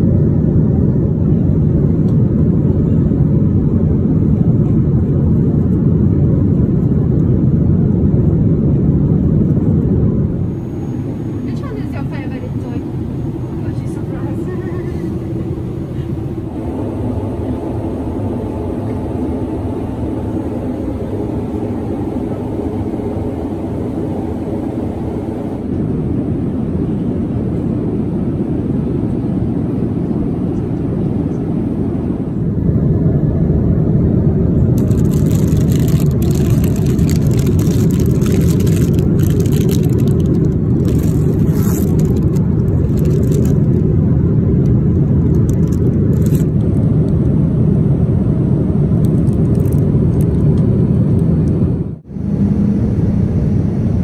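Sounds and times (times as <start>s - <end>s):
airplane cabin roar: 0.0s - 54.0s
plastic crinkling: 34.8s - 43.8s, 45.2s - 46.5s, 49.1s - 49.8s.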